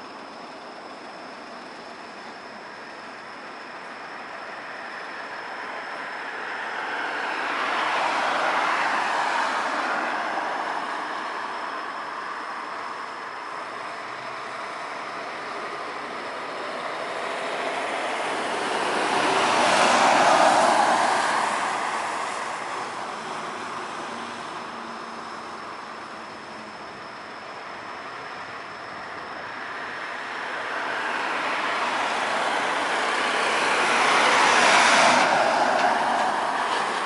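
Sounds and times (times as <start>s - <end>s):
cars passing on wet road: 5.7s - 25.9s, 29.5s - 37.0s.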